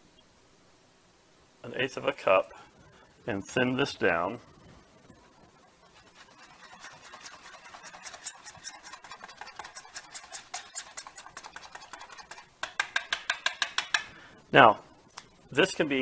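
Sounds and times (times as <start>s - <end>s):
whisk beating batter in a bowl: 5.0s - 13.9s.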